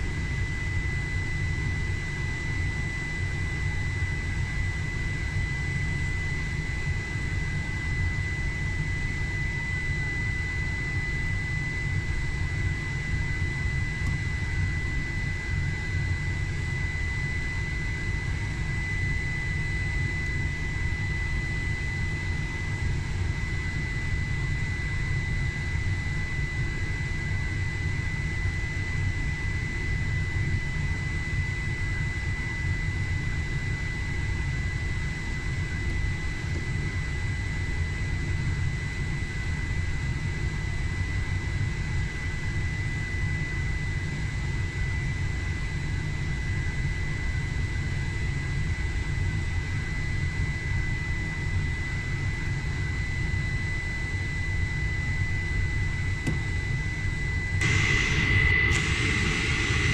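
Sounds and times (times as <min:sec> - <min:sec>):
high-pitched whine: 0:54.8 - 0:59.9
low aircraft rumble: 0:56.1 - 0:59.9.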